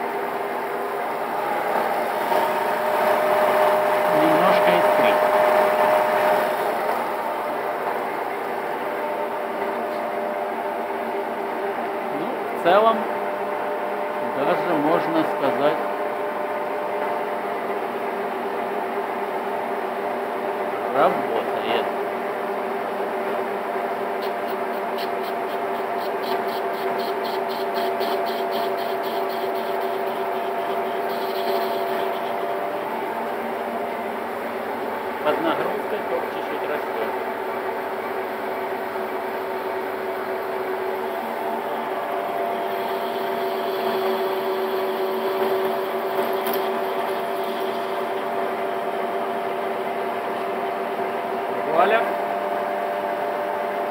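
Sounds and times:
lathe motor humming: 0:00.0 - 0:17.2, 0:19.4 - 0:53.9
cutting tool scraping metal: 0:24.2 - 0:32.5, 0:42.7 - 0:47.9.

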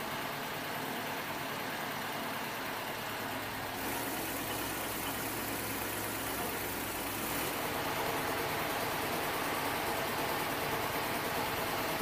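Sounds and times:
machinery hissing: 0:03.7 - 0:07.6.

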